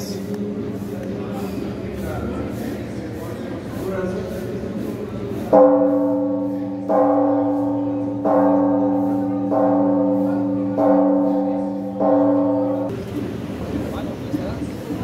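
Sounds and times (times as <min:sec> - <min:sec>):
church bell tolling: 0:05.5 - 0:12.9.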